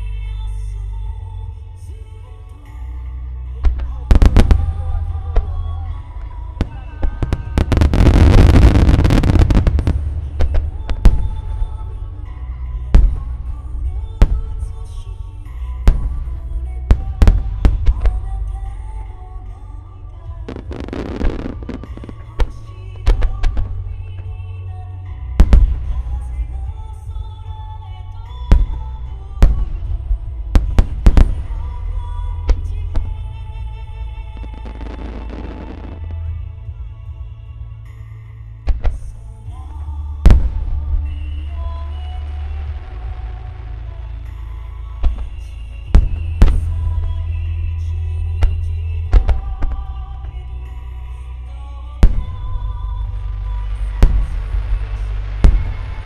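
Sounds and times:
background music: 0:00.0 - 0:56.0
low rumble: 0:01.0 - 0:56.0
firework shells booming: 0:06.6 - 0:11.8.

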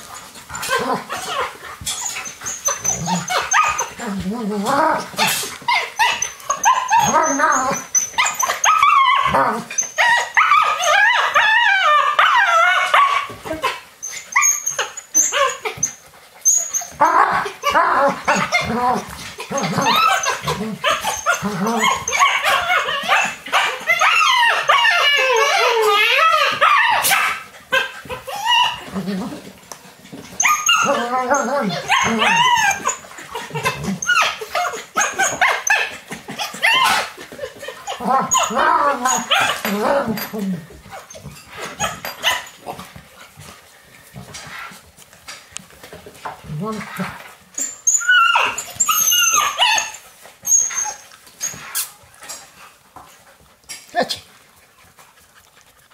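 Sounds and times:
high wavering puppy whines: 0:00.0 - 0:29.6, 0:30.2 - 0:42.8, 0:46.3 - 0:52.4
puppies yipping and barking: 0:00.0 - 0:53.8
dog barks: 0:26.6 - 0:27.4.

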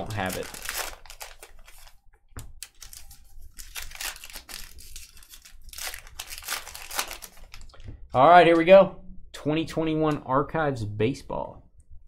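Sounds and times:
wrapper tearing and crinkling: 0:00.0 - 0:02.0, 0:02.6 - 0:07.7.

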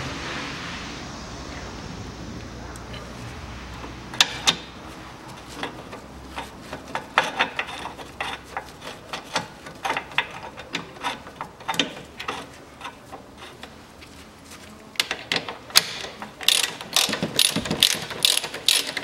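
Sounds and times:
hand ratchet clicking: 0:15.0 - 0:19.0.

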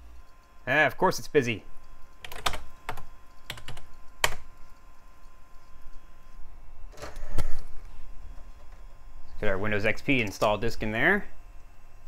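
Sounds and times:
keyboard keystrokes: 0:02.2 - 0:04.5.

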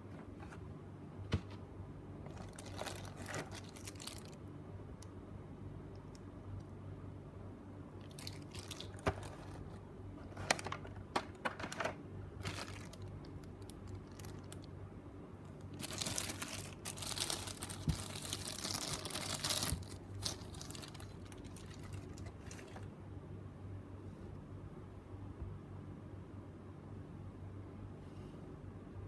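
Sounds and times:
plastic bag crinkling: 0:02.2 - 0:04.4, 0:08.0 - 0:14.8, 0:15.5 - 0:22.9.

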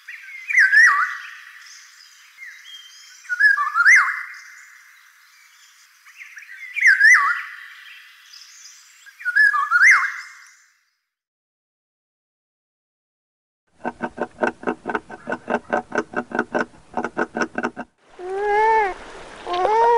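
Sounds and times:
bird fluty whistled song: 0:00.1 - 0:11.0.

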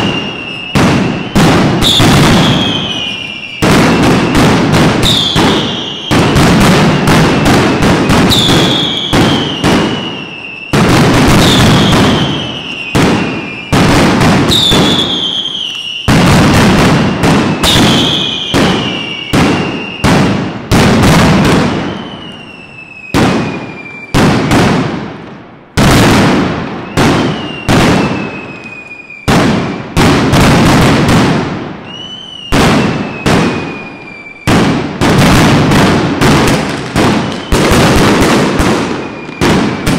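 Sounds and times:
falling whistles: 0:00.0 - 0:13.9, 0:14.5 - 0:16.1, 0:17.1 - 0:20.1, 0:21.7 - 0:24.2, 0:26.8 - 0:29.3, 0:31.8 - 0:34.6, 0:37.1 - 0:37.8, 0:38.8 - 0:39.9
firecrackers banging: 0:00.0 - 0:39.9.

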